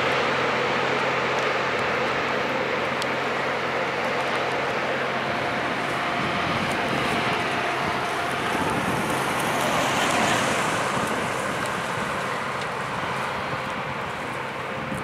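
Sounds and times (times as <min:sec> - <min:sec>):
grinding stones hissing on rail: 0:00.0 - 0:15.0
low diesel engine hum: 0:00.0 - 0:15.0.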